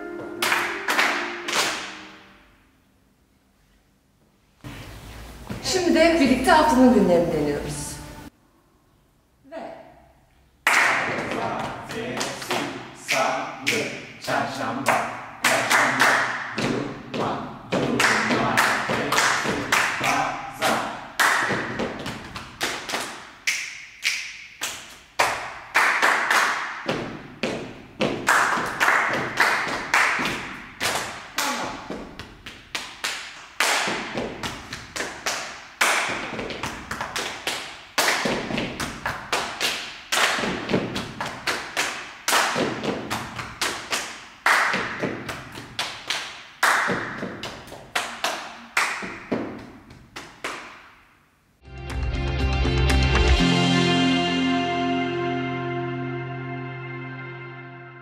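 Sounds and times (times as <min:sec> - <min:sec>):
hand claps: 0:00.3 - 0:02.2, 0:10.6 - 0:14.0, 0:14.8 - 0:16.8, 0:17.8 - 0:51.0.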